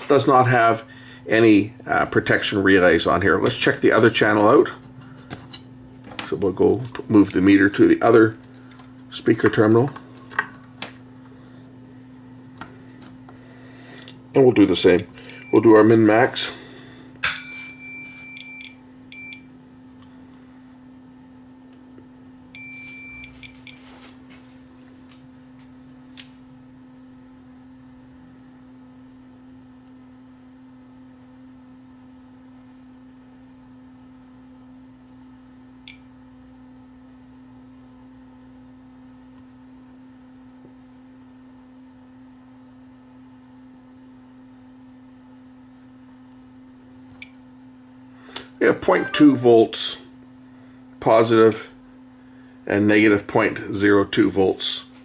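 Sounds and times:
steady low hum: 0:00.0 - 0:41.6, 0:43.0 - 0:55.0
multimeter beeping: 0:15.2 - 0:15.9, 0:17.3 - 0:19.5, 0:22.6 - 0:23.8.

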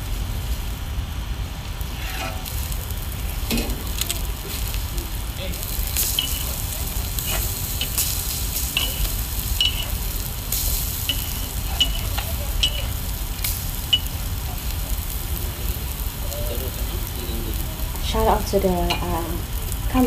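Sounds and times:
omelettes sizzling on a griddle: 0:00.0 - 0:20.0.

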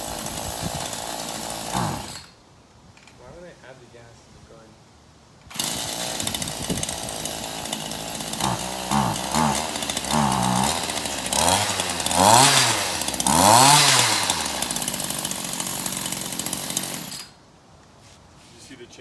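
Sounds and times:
chainsaw engine revving: 0:00.0 - 0:02.4, 0:05.5 - 0:17.4.

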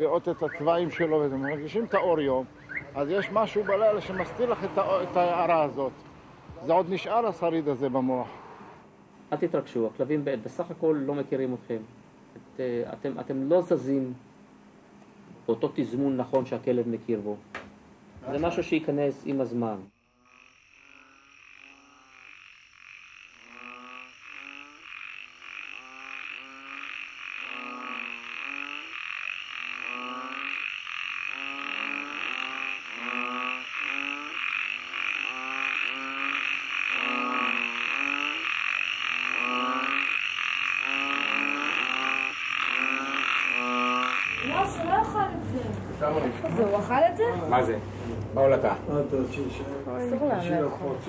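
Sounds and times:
frogs croaking in a chorus: 0:00.0 - 0:05.7, 0:19.9 - 0:45.3.

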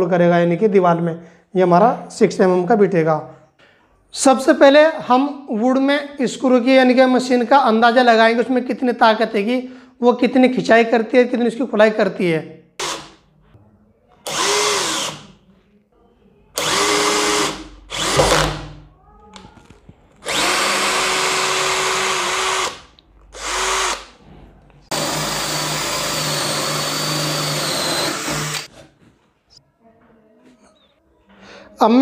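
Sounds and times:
cordless drill driving screws: 0:12.8 - 0:13.2, 0:14.2 - 0:15.3, 0:16.6 - 0:18.8, 0:20.2 - 0:24.2, 0:24.9 - 0:28.7.

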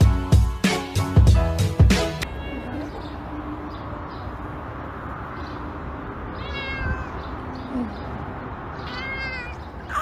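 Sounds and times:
cat meowing: 0:02.2 - 0:03.1, 0:06.3 - 0:07.4, 0:08.8 - 0:10.0.

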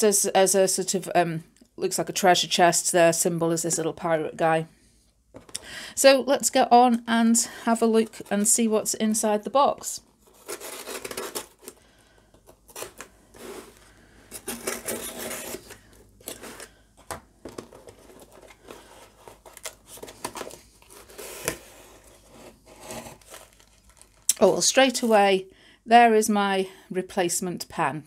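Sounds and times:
cardboard scraping and rustling: 0:10.1 - 0:11.8, 0:12.4 - 0:24.3.

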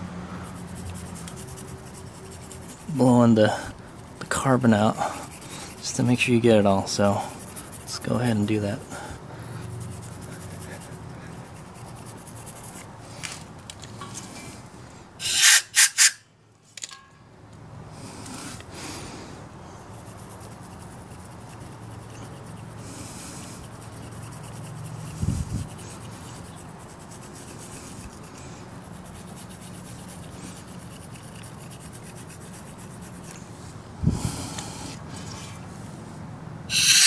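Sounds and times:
brush scrubbing metal: 0:00.4 - 0:14.6, 0:15.2 - 0:16.1, 0:19.8 - 0:33.8, 0:36.7 - 0:37.0
short loud bursts: 0:36.7 - 0:37.0.

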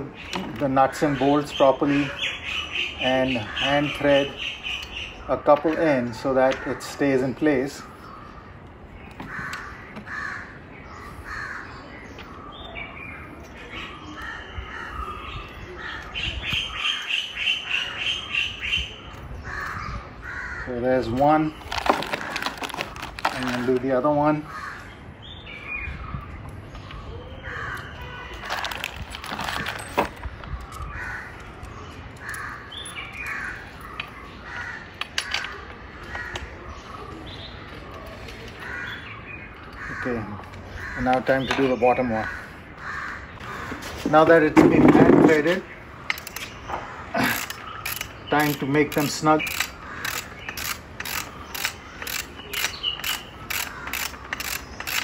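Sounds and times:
birds cawing: 0:00.0 - 0:25.9, 0:26.8 - 0:55.0
sharp clicks: 0:47.3 - 0:55.0.

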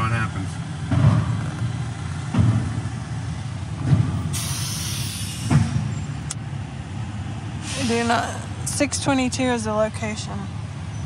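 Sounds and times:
truck engine rumbling: 0:00.0 - 0:11.0
hiss: 0:04.3 - 0:05.6, 0:07.6 - 0:08.1.

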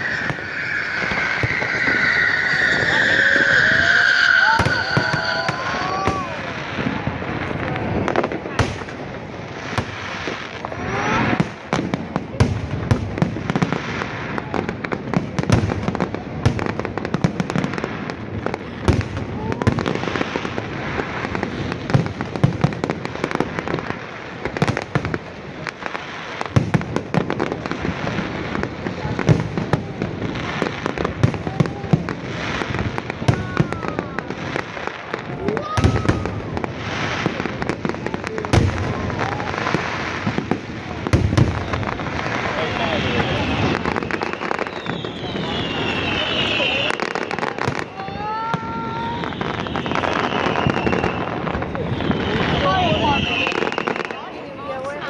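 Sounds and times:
fireworks bangs and crackles: 0:00.0 - 0:55.0
people talking: 0:02.5 - 0:09.0, 0:10.5 - 0:11.4, 0:28.9 - 0:32.2, 0:33.2 - 0:34.5, 0:35.2 - 0:36.6, 0:37.2 - 0:40.0, 0:40.6 - 0:44.0, 0:45.2 - 0:49.4, 0:51.3 - 0:55.0.

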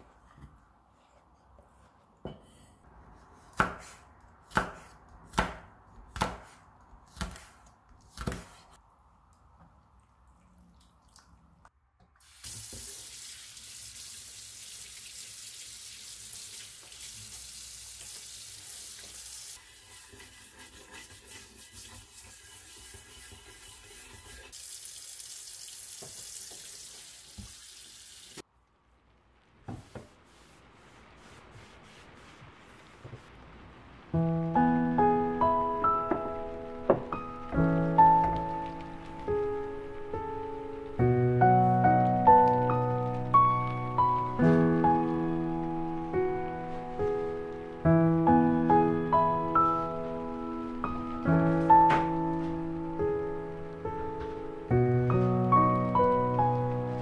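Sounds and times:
tap water running: 0:12.1 - 0:28.4.

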